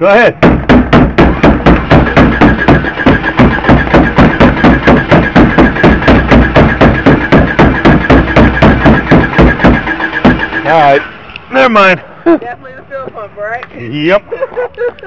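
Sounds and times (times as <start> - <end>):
rapid hammer blows on metal: 0.3 - 11.7
engine cranking: 0.5 - 11.8.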